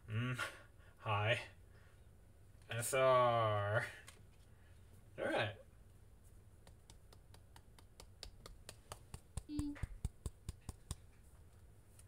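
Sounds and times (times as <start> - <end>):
light sharp clicks and taps: 6.6 - 12.0
person humming: 9.4 - 9.9.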